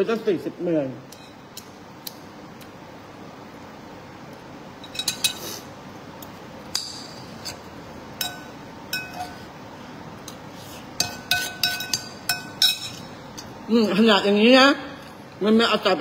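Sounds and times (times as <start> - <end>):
utensils clinking on ceramic bowl: 4.8 - 5.4, 8.2 - 9.4, 11.0 - 13.6.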